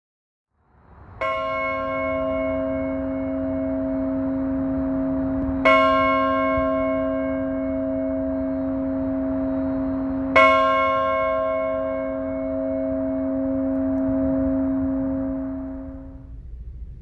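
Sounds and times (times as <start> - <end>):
church bell tolling: 1.1 - 17.0.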